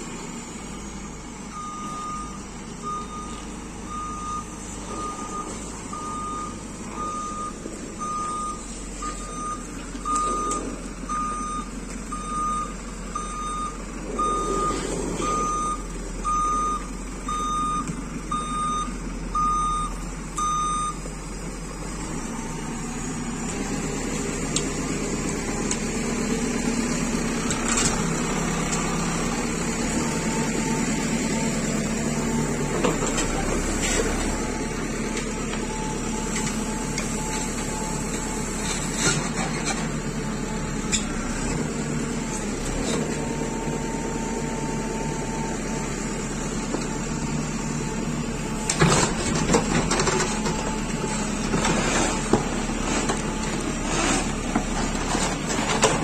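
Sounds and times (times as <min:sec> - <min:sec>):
diesel engine running: 0:00.0 - 0:56.0
reversing alarm beeping: 0:01.5 - 0:21.1, 0:33.8 - 0:39.8.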